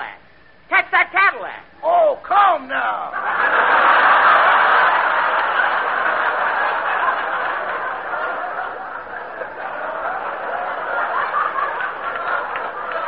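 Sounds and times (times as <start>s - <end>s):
studio audience laughing: 3.1s - 13.0s.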